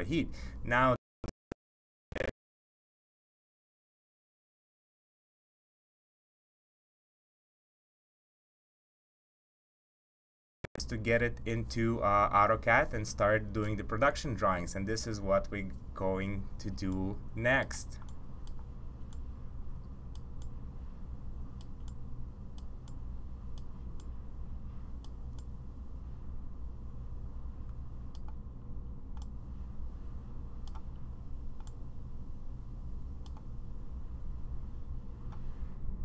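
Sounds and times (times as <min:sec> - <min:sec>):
steady low hum: 0:00.0 - 0:01.0, 0:10.8 - 0:36.0
computer mouse clicks: 0:18.0 - 0:20.6, 0:21.6 - 0:24.2, 0:25.0 - 0:25.5, 0:27.6 - 0:28.4, 0:29.1 - 0:29.4, 0:30.6 - 0:31.0, 0:31.6 - 0:31.8, 0:33.2 - 0:33.5.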